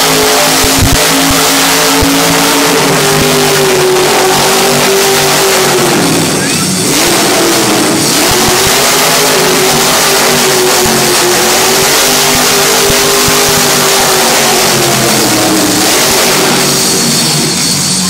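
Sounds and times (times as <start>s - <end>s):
truck engine roaring at high revs: 0.0s - 18.0s.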